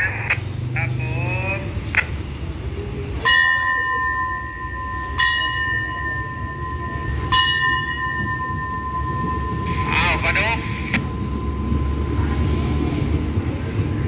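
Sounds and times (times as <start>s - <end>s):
train rumbling: 0.0s - 14.0s
station bell ringing: 3.1s - 14.0s.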